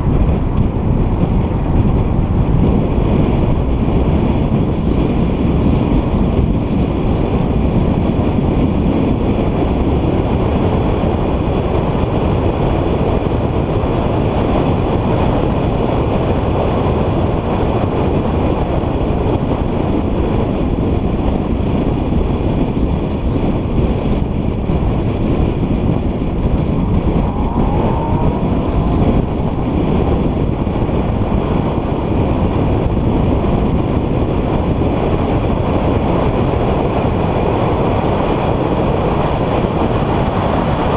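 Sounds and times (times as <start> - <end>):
car driving at speed: 0.0 - 40.9
short rising whine: 26.0 - 30.6.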